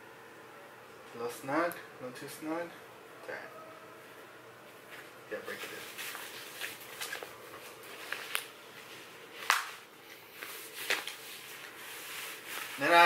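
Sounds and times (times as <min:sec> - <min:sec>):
fabric rustling: 0:04.7 - 0:13.0.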